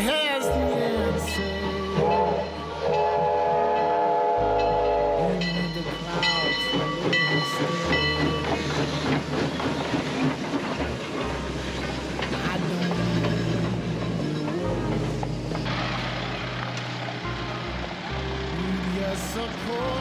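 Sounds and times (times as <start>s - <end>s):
train rail clatter: 0.0s - 20.0s
steam locomotive whistle: 0.1s - 7.1s.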